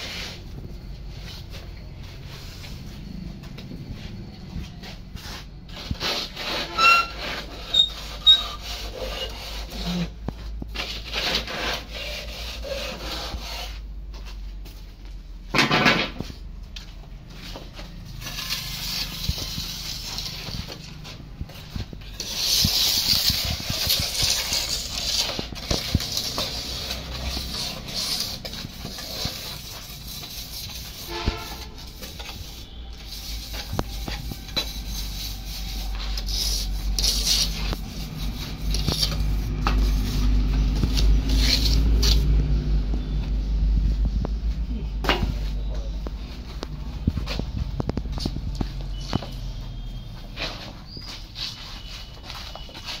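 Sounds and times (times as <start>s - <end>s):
hand float scraping wet cement: 4.8s - 10.1s, 17.5s - 42.4s.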